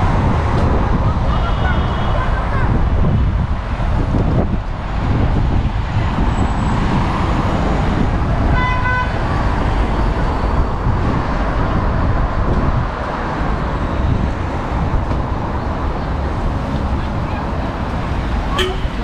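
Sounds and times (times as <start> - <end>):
road traffic passing: 0.0 - 19.0
car horn honk: 1.3 - 2.4, 8.5 - 9.2, 18.5 - 19.0.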